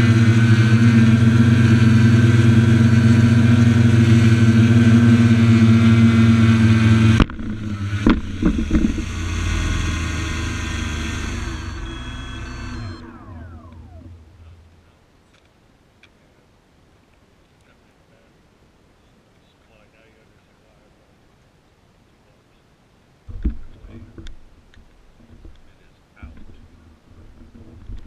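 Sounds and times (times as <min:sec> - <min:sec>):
drone motors humming: 0:00.0 - 0:15.5, 0:23.3 - 0:28.0
drone landing knocks on asphalt: 0:07.2 - 0:09.1, 0:23.3 - 0:24.4.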